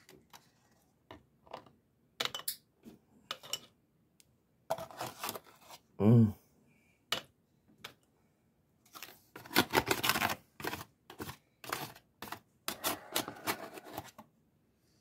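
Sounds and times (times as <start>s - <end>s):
foil pan crinkling and scraping: 4.7s - 5.8s, 8.9s - 14.2s.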